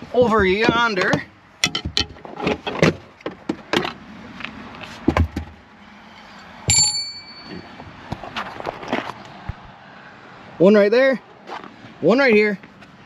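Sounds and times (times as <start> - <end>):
tools clicking and knocking: 0.3 - 4.0
metal wrench clinking on metal: 6.3 - 7.6.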